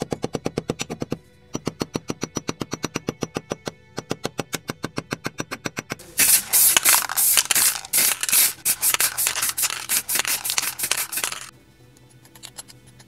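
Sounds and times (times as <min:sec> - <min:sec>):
spray-paint can hissing: 0:06.0 - 0:11.5.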